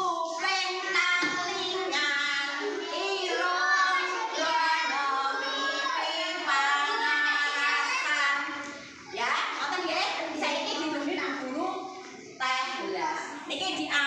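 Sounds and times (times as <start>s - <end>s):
children singing in unison: 0.0s - 9.2s.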